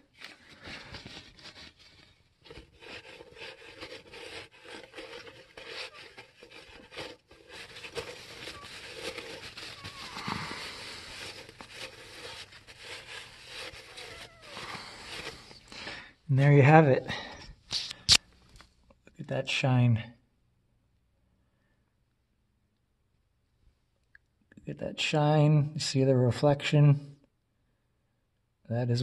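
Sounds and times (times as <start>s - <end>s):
cloth rag rubbing on metal: 0.0s - 15.6s
scratchy handling noises: 0.0s - 16.1s.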